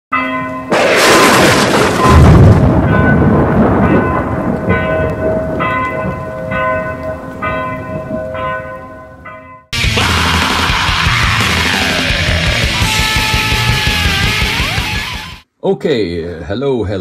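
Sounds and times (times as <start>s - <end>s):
thunderclap with low rumble: 0.7s - 8.4s
deep bell tolling: 1.9s - 9.8s.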